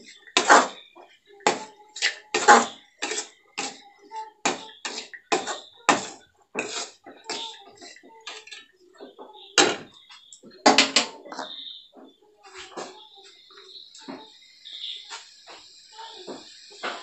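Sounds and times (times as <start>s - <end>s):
metal spatula scraping metal pan: 1.4s - 3.8s, 4.4s - 8.7s.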